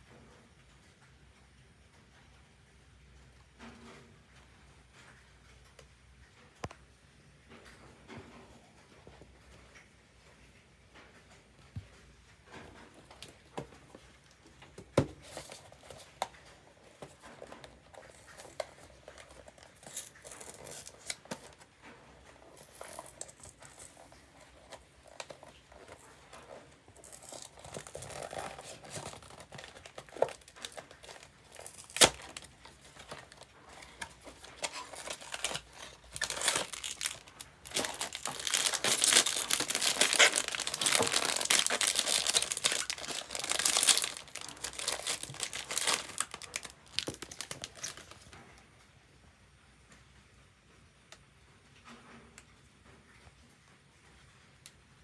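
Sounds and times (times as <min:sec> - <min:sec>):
foil bag crinkling and tearing: 0:15.0 - 0:21.7, 0:22.4 - 0:48.3.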